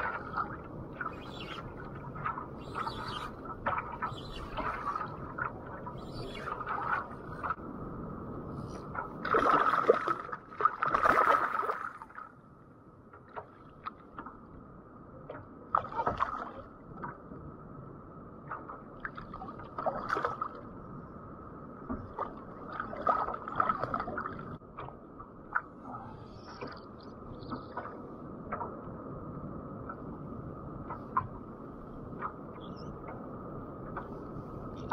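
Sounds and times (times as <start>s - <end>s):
water sloshing against kayak: 0.0s - 7.6s, 8.6s - 12.3s.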